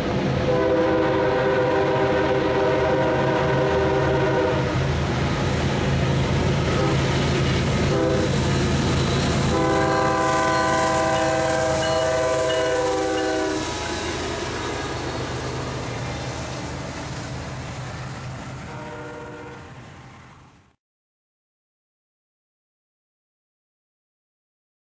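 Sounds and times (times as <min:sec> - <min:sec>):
diesel locomotive engine rumble: 0:00.0 - 0:20.8
passing rail cars rumbling: 0:00.0 - 0:20.8
train horn blast: 0:00.5 - 0:04.9, 0:06.6 - 0:07.1, 0:07.8 - 0:08.4, 0:09.4 - 0:15.5, 0:18.7 - 0:19.8.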